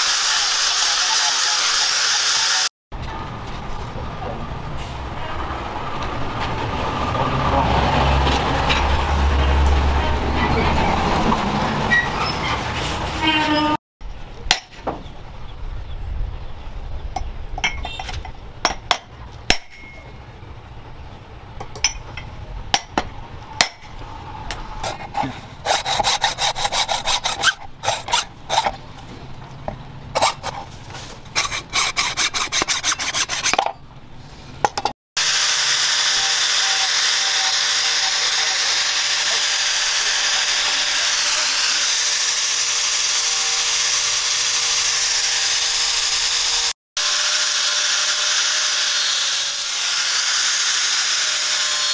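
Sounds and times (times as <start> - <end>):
angle grinder grinding metal: 0.0 - 2.7, 35.2 - 51.9
hacksaw cutting wood: 0.0 - 2.7, 24.5 - 28.8, 30.1 - 30.7, 31.3 - 33.7, 35.2 - 51.9.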